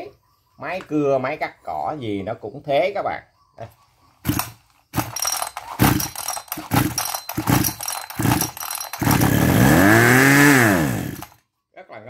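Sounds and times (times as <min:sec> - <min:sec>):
engine turning over rattling: 0:04.2 - 0:11.4
recoil starter cord yanks: 0:04.2 - 0:11.4.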